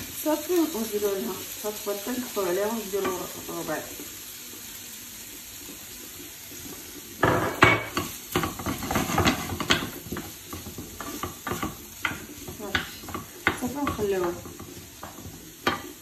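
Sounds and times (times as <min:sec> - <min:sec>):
food sizzling in a frying pan: 0:00.0 - 0:16.0
wooden spoon scraping a pan: 0:07.8 - 0:16.0.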